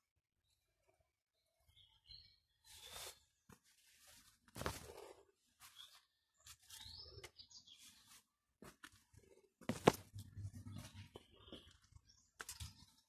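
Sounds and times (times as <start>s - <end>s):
leaves rustling against phone: 2.6s - 7.0s.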